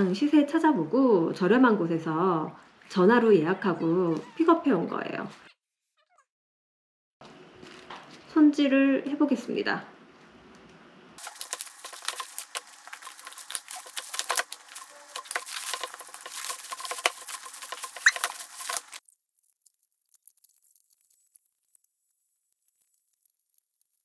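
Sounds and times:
plastic bag crinkling: 11.2 - 23.8
crab shell crackling: 11.2 - 24.0.

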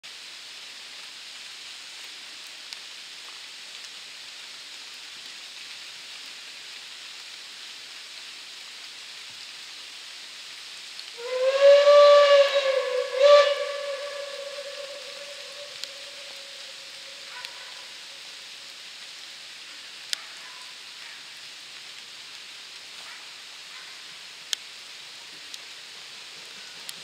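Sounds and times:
steady background hiss: 0.1 - 27.0
steam locomotive whistle: 11.2 - 18.0.

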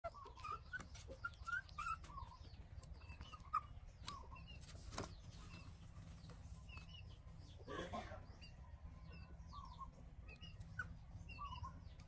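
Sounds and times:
puppy whimpering: 0.0 - 4.5, 9.6 - 11.9.

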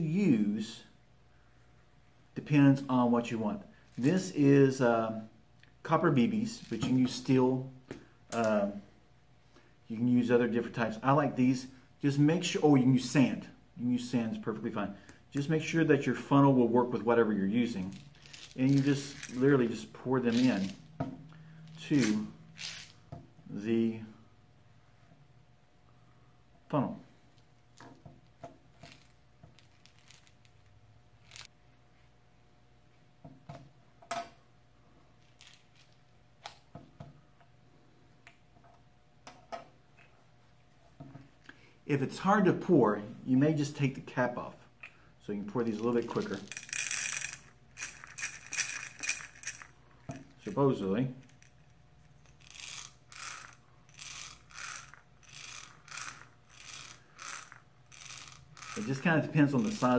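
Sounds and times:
metal pellets rattling in plastic funnel: 17.7 - 20.9, 21.7 - 23.0, 28.8 - 31.5, 45.6 - 49.8, 51.3 - 59.9.

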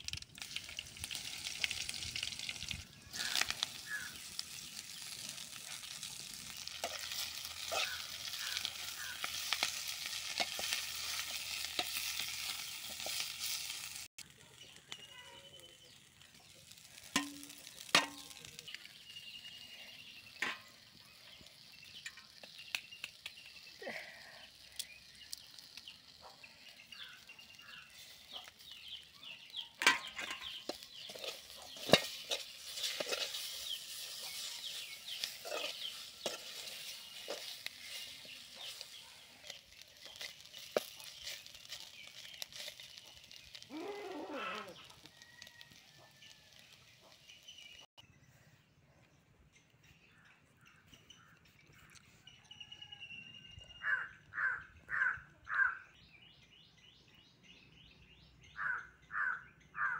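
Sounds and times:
food sizzling: 0.0 - 47.9
metal spatula scraping pan: 29.8 - 38.9.

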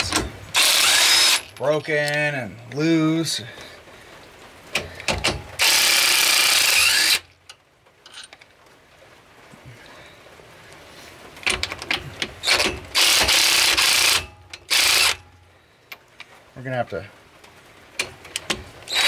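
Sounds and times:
impact wrench hammering: 5.1 - 6.0.

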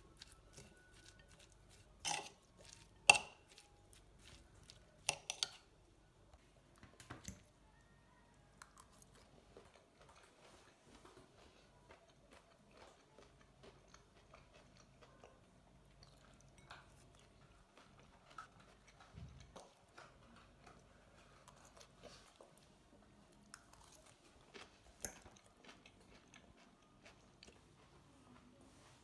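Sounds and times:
chewing: 0.0 - 5.7, 6.8 - 28.0
metal fork scraping in a bowl: 0.2 - 3.6.

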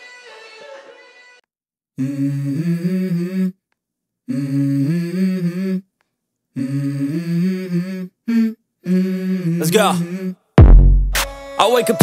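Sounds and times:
person humming a slow melody: 2.0 - 3.6, 4.3 - 5.9, 6.5 - 10.5.

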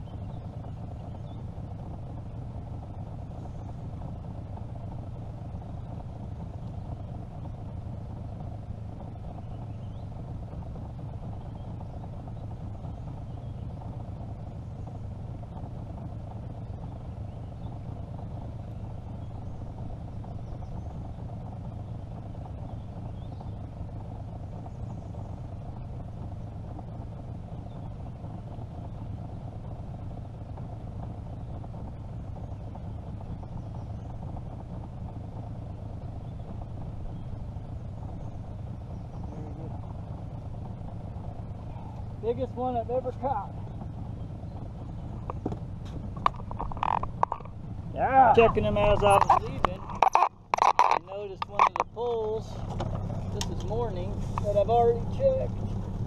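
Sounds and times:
outboard motor idling: 0.0 - 56.0.

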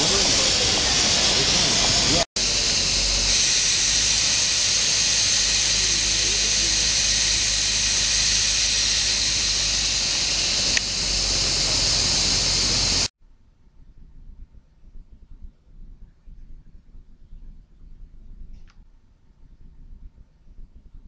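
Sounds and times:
low rumble: 0.0 - 13.1
steady hiss: 0.0 - 13.1.

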